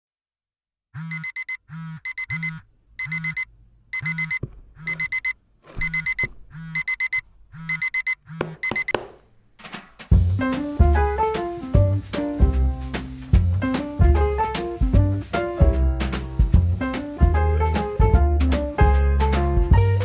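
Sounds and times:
phone alarm beeping: 1.0 - 9.0.

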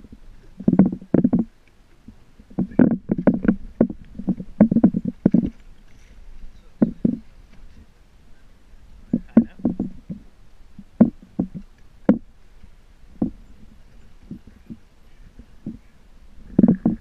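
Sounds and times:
water slapping against boat hull: 0.5 - 7.8, 9.1 - 14.8, 16.5 - 17.0.

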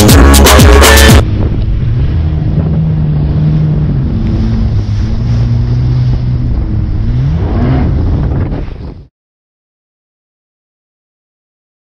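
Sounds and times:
jet ski engine running: 0.0 - 9.1
water noise: 0.0 - 9.1
wind rushing over microphone: 1.2 - 9.1.

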